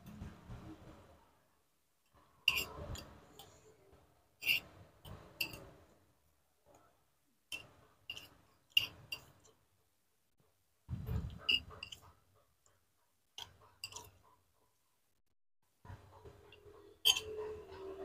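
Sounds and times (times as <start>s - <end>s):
metal spoon clinking on bowl: 2.4s - 3.6s, 4.4s - 5.7s, 7.5s - 9.5s, 13.4s - 14.1s, 17.0s - 18.0s.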